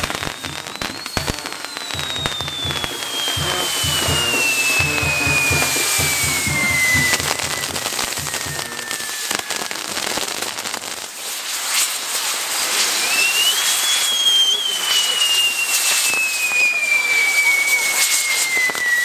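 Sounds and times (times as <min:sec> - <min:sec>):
firework pops: 0:00.0 - 0:09.3
falling firework whistle: 0:00.0 - 0:19.0
fire wheels crackling and hissing: 0:00.0 - 0:19.0
low rapid pulsing: 0:00.4 - 0:09.1.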